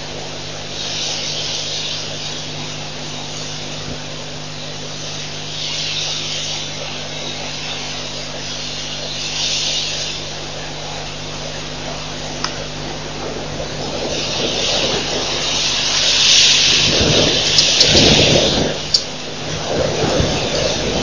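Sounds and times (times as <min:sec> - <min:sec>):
electrical hum and hiss: 0:00.0 - 0:21.0
higher hiss: 0:12.6 - 0:19.5.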